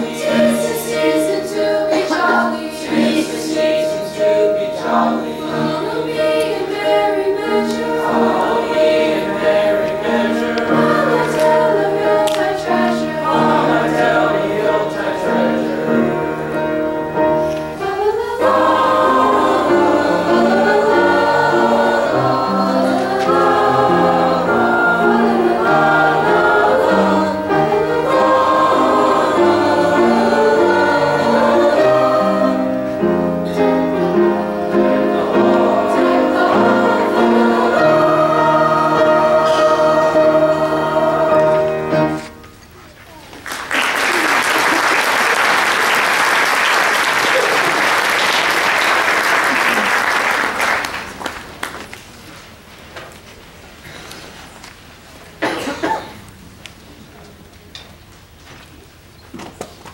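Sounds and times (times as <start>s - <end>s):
choir singing in parts: 0.0s - 42.4s.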